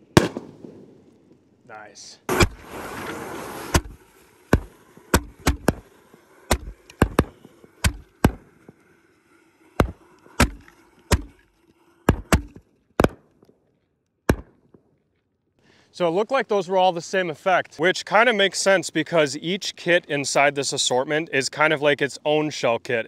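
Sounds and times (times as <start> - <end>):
firework shells banging: 0.0 - 15.2.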